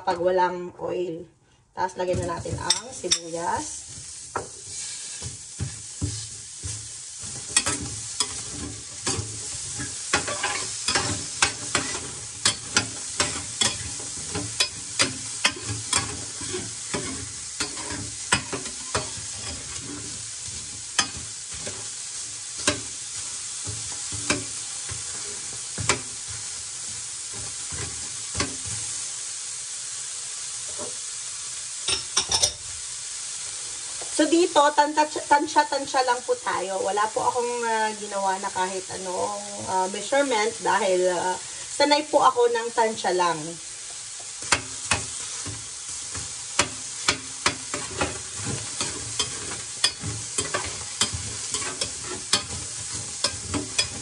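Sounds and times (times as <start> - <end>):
onion sizzling in skillet: 1.8 - 54.0
metal spoon scraping pan: 2.2 - 21.9, 44.4 - 54.0.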